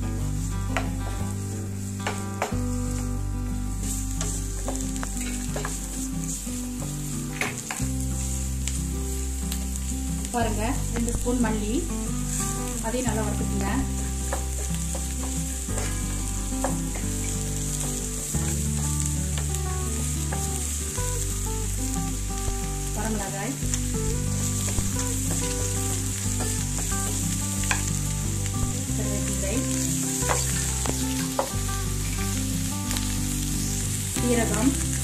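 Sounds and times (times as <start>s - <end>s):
onions sizzling in oil: 0.0s - 35.0s.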